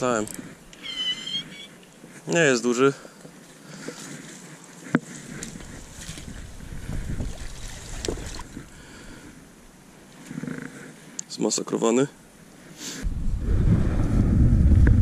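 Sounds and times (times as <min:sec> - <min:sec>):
water sloshing: 0:03.3 - 0:09.4
wind on microphone: 0:05.4 - 0:08.7, 0:13.0 - 0:15.0.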